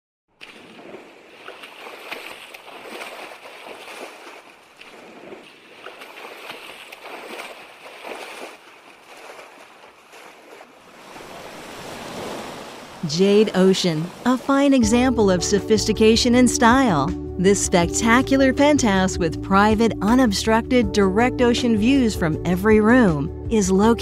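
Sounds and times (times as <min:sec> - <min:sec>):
ocean waves washing: 0:00.4 - 0:15.3.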